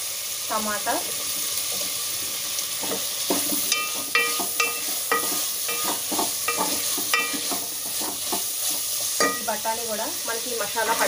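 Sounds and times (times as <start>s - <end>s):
vegetables sizzling in oil: 0.0s - 11.0s
spatula knocking against pot: 3.3s - 8.4s.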